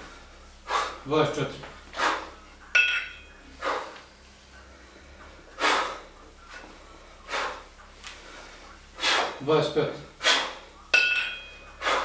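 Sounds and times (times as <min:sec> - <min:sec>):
sharp forceful breaths: 0:00.0 - 0:01.1, 0:01.9 - 0:02.5, 0:03.1 - 0:09.4, 0:10.1 - 0:10.7, 0:11.5 - 0:12.0
kettlebells clinking together: 0:02.7 - 0:03.4, 0:10.9 - 0:11.8.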